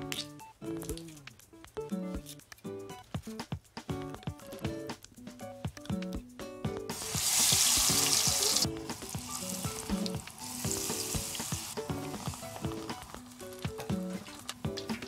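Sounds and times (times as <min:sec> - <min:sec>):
soft background music: 0:00.0 - 0:15.0
battered greens sizzling in hot oil: 0:06.9 - 0:13.8.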